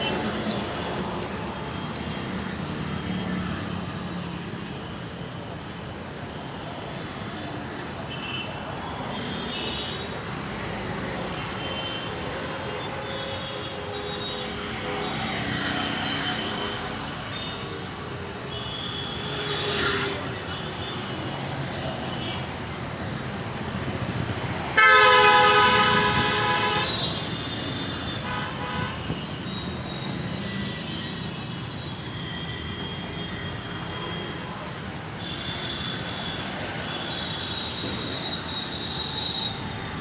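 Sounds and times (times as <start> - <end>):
road traffic: 0.0 - 40.0
vehicle horn blaring: 24.8 - 27.1.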